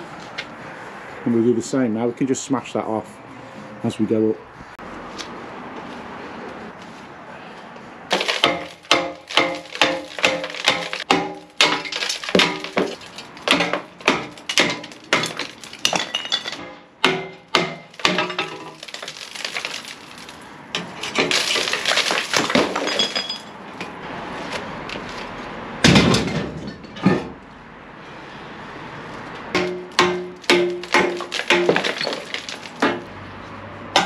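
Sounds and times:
cast iron pieces clattering: 0:08.1 - 0:23.6, 0:25.8 - 0:27.4, 0:29.6 - 0:33.1
hammer striking cast iron pipe: 0:16.6 - 0:18.4.

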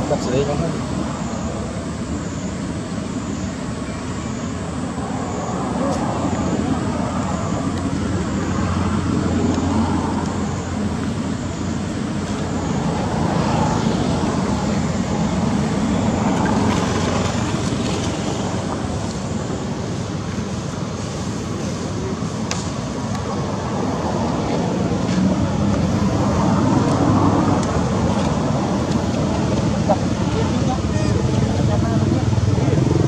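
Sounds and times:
road traffic rumbling: 0:00.0 - 0:33.0.

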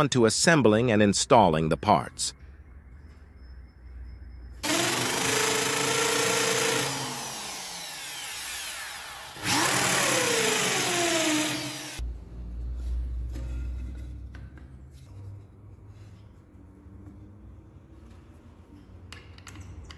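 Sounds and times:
electric drill whining: 0:04.6 - 0:12.0.

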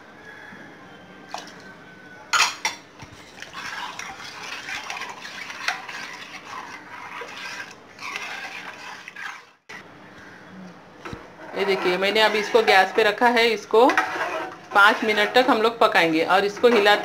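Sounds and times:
spoon stirring in steel bowl: 0:02.4 - 0:09.6, 0:11.0 - 0:17.0.

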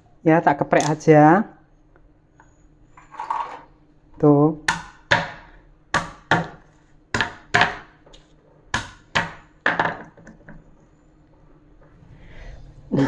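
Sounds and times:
pestle knocking on wooden board: 0:04.7 - 0:07.9, 0:08.7 - 0:10.1.

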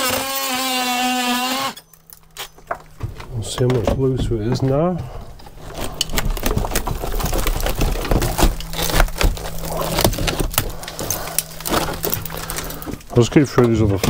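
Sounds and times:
rotten timber cracking and splintering: 0:00.0 - 0:14.0
steady low hum: 0:01.7 - 0:14.0.

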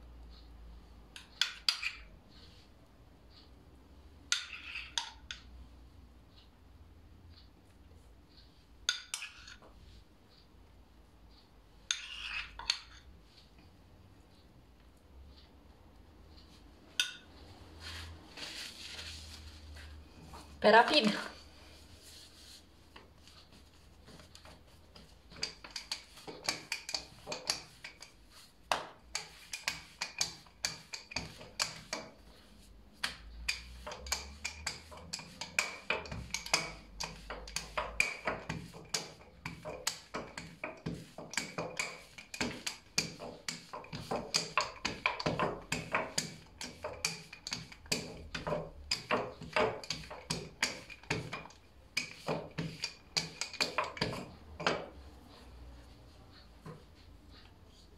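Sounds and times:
rolling pin knocking on stone: 0:33.0 - 0:54.9.

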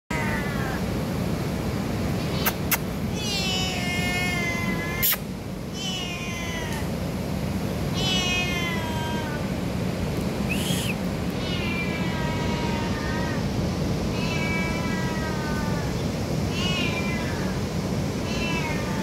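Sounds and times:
cat meowing: 0:00.1 - 0:00.8, 0:02.2 - 0:05.2, 0:05.8 - 0:06.9, 0:07.9 - 0:09.4, 0:10.6 - 0:13.5, 0:14.1 - 0:15.9, 0:16.5 - 0:17.6, 0:18.2 - 0:19.0
cat chirp: 0:02.2 - 0:06.8, 0:10.5 - 0:13.2.

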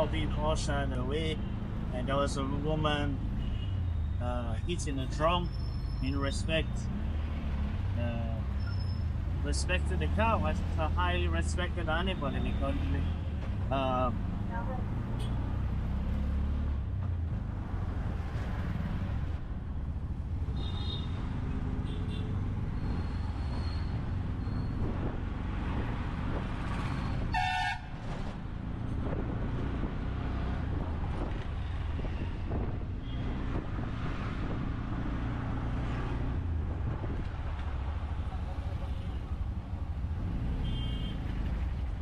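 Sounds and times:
traffic engines running: 0:00.0 - 0:42.0
car horn toots: 0:27.3 - 0:27.9, 0:40.6 - 0:41.2
loud horn blast: 0:27.3 - 0:28.0.

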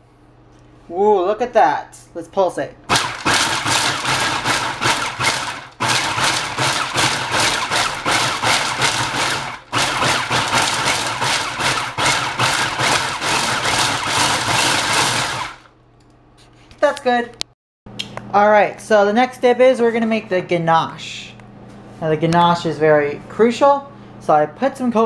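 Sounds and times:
food processor motor whirring: 0:02.9 - 0:15.7.

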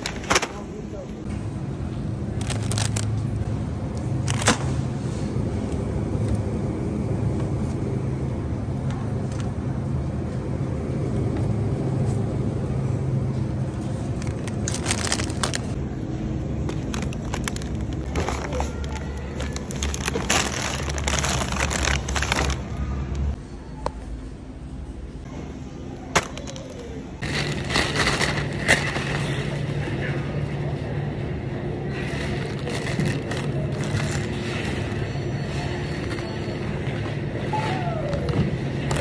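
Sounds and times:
shopping cart rolling: 0:02.2 - 0:07.8, 0:11.0 - 0:15.8, 0:16.5 - 0:23.1, 0:27.2 - 0:39.0
packaging knocks and crinkles: 0:14.2 - 0:15.8, 0:16.7 - 0:22.6.

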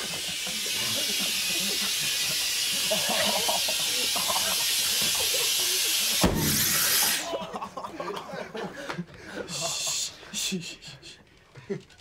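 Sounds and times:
air hissing: 0:00.0 - 0:07.3
inflated seat bursting: 0:00.0 - 0:07.3.

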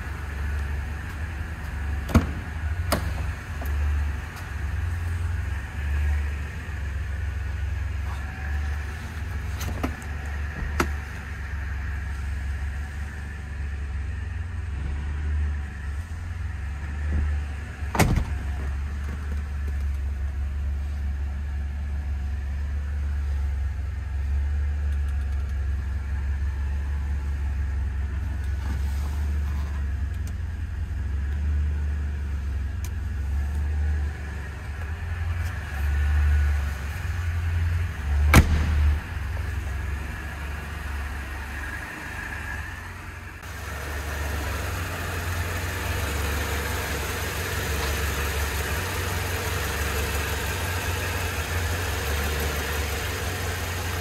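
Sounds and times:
car engine idling: 0:00.0 - 0:54.0
car door shutting: 0:17.9 - 0:18.5, 0:38.3 - 0:39.0.

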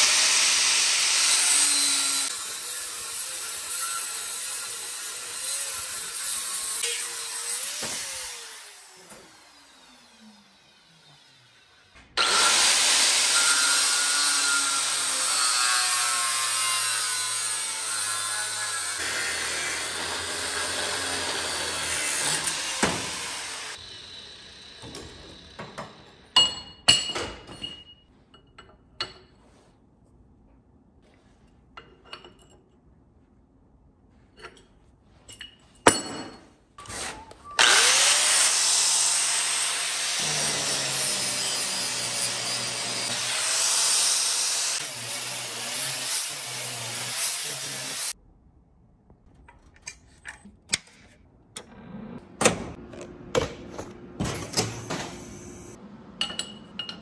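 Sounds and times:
angle grinder grinding steel: 0:00.0 - 0:26.3, 0:37.6 - 0:48.2.

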